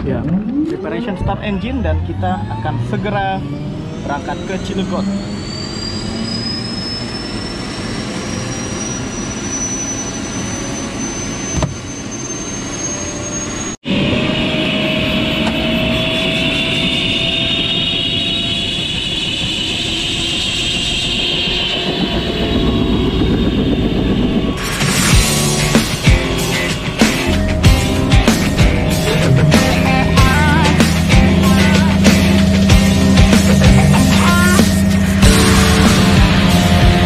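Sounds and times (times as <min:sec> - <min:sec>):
helicopter turbine engine whine: 0:00.0 - 0:37.0.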